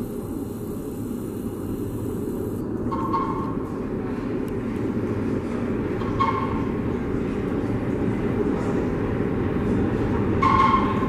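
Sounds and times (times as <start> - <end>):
subway train rumbling: 0.0 - 11.0.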